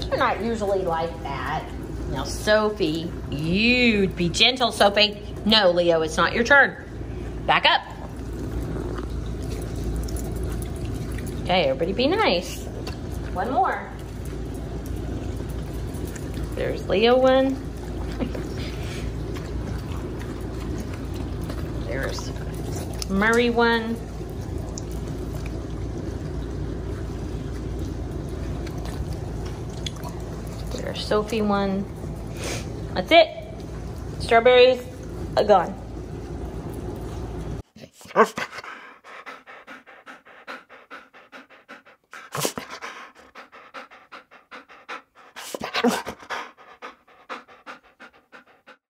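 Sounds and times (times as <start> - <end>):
dog panting: 38.0 - 48.9.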